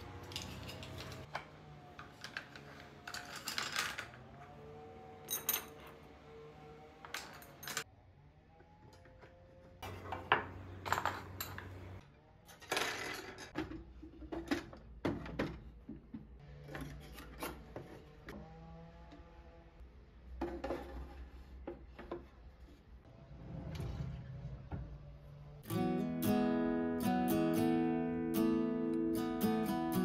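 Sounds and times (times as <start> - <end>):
dishes and utensils clinking: 0.2 - 1.3, 9.8 - 12.0.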